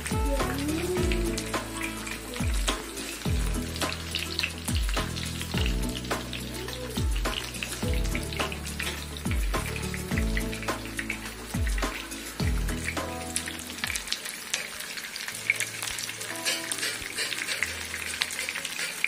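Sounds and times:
background music with beat: 0.0 - 14.2
oil sizzling and crackling: 0.0 - 19.0.

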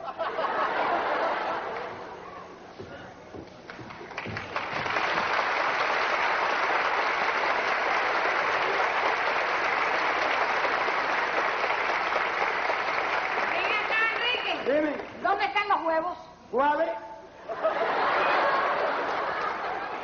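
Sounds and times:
audience applauding: 3.5 - 15.5, 18.2 - 20.0.

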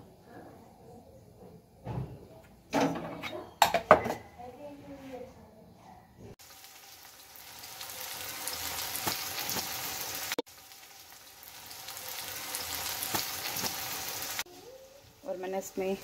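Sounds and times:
onions sizzling in hot oil: 6.4 - 16.0.

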